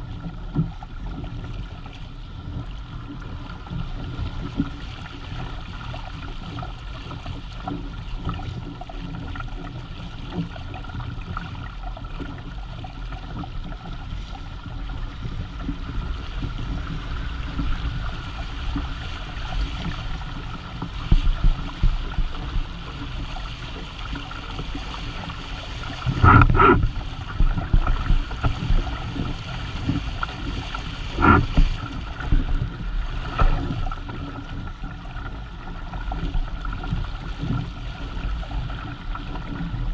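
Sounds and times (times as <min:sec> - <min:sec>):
water rushing along hull: 0:00.0 - 0:39.9
wind buffeting microphone: 0:14.4 - 0:39.9.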